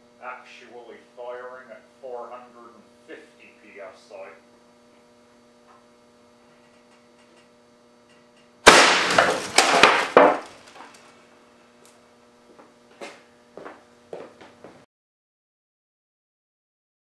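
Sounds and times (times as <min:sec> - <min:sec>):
knocks of falling boards: 0:08.6 - 0:10.9
monitor smashing crash: 0:08.7 - 0:10.6
debris clattering: 0:08.7 - 0:11.0.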